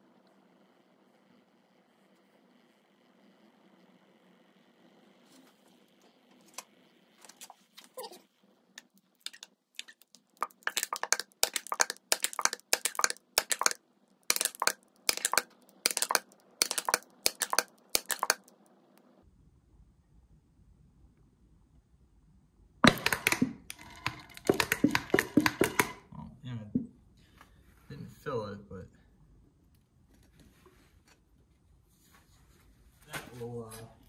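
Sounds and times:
crackling fluid spurts: 0:08.7 - 0:18.7
pump clicks: 0:09.2 - 0:18.5, 0:22.8 - 0:26.0.

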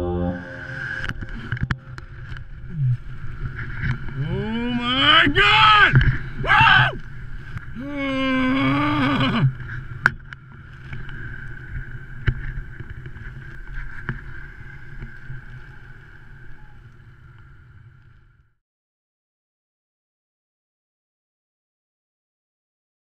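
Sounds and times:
man shouting: 0:04.7 - 0:07.0.

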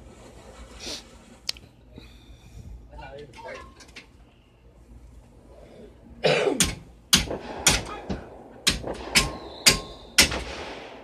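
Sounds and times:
firework bangs: 0:07.2 - 0:11.0.

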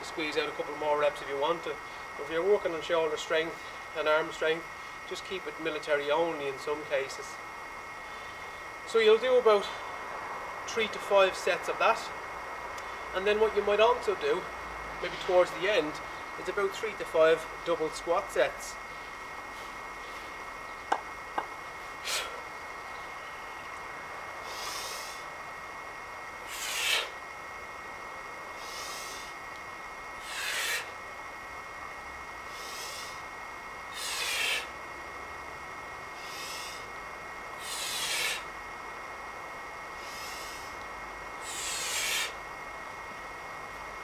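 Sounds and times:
faint high whine: 0:00.0 - 0:44.0
man breathing heavily: 0:08.0 - 0:08.8, 0:22.0 - 0:22.6, 0:24.4 - 0:25.4, 0:26.4 - 0:27.2, 0:28.5 - 0:29.5, 0:30.2 - 0:31.0, 0:32.4 - 0:34.8, 0:36.1 - 0:37.0, 0:37.6 - 0:38.5, 0:39.9 - 0:42.4.

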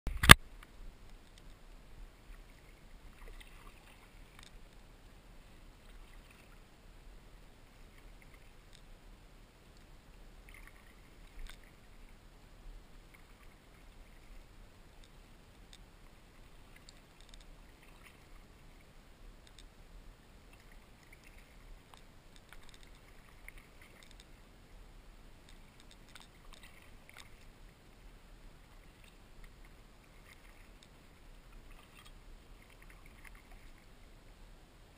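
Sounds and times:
paddle splashing in water: 0:02.4 - 0:04.7, 0:20.5 - 0:24.4, 0:25.5 - 0:28.0, 0:28.6 - 0:33.9.

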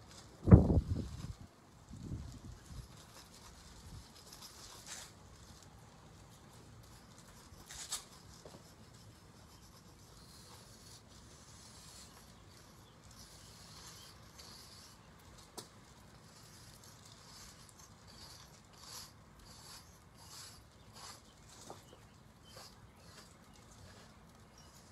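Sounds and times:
chalk scratching on concrete: 0:06.2 - 0:15.1, 0:16.1 - 0:24.9.

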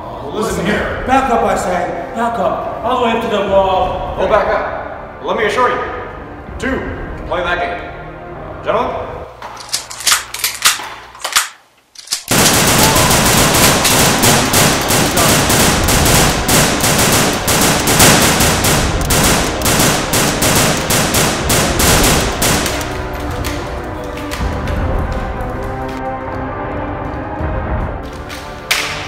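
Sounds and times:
single gunshots: 0:12.3 - 0:23.0
rapid gunfire: 0:12.3 - 0:23.1.

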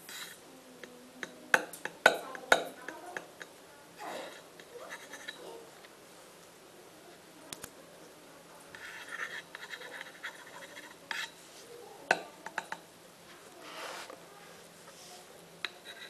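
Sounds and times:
scratchy rubbing on microphone: 0:08.7 - 0:11.6, 0:13.6 - 0:14.2.

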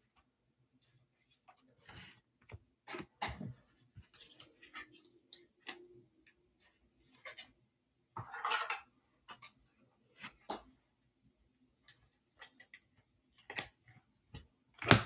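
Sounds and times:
cards shuffling clicks and rustles: 0:03.7 - 0:05.8.

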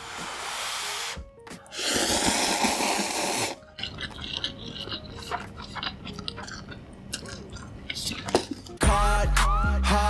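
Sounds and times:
loud slurp of noodles: 0:01.7 - 0:05.4
wet chewing: 0:01.8 - 0:08.8.

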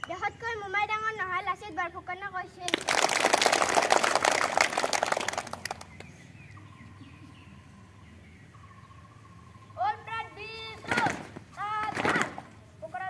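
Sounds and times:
children clapping: 0:02.6 - 0:06.1.

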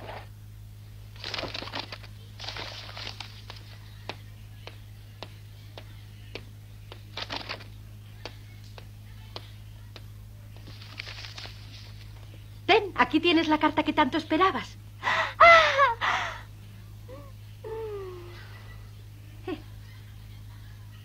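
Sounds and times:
paper rustling: 0:01.2 - 0:04.2, 0:06.9 - 0:07.8, 0:10.6 - 0:12.4.

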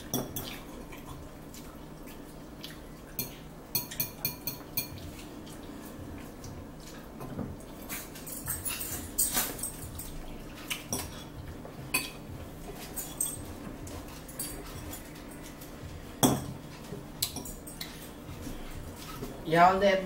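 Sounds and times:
forks clinking on plates: 0:07.7 - 0:11.4, 0:12.8 - 0:18.2.

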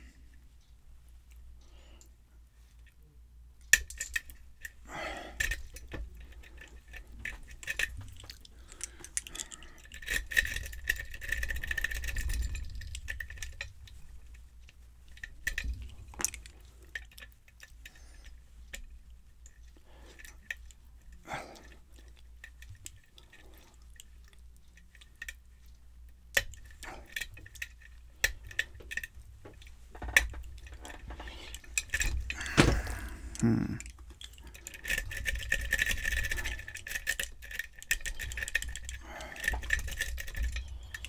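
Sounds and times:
lock pick clicking and scraping: 0:03.7 - 0:04.8, 0:05.4 - 0:14.4, 0:26.3 - 0:32.7, 0:33.3 - 0:41.0.

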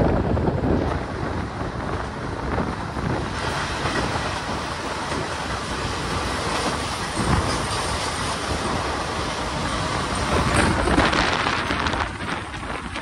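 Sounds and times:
train wheels rumbling on rails: 0:00.0 - 0:13.0
wind noise: 0:00.0 - 0:13.0.

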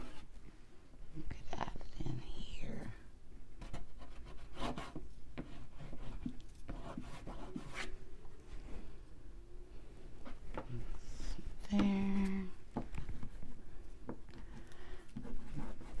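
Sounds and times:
oil pastel scratching on paper: 0:03.6 - 0:07.9, 0:15.1 - 0:16.0.

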